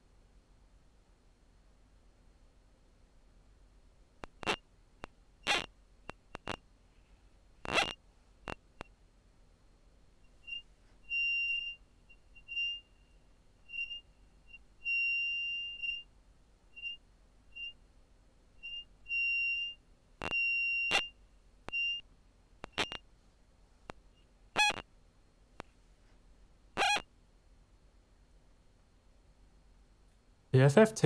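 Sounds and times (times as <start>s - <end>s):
sharp clicks: 4.2s - 6.6s, 22.6s - 23.0s
high-pitched squeaks: 4.3s - 4.6s, 5.4s - 6.6s, 7.6s - 8.6s, 10.4s - 11.8s, 13.7s - 16.0s, 18.6s - 21.1s, 22.6s - 23.0s, 24.6s - 24.8s, 26.8s - 27.0s.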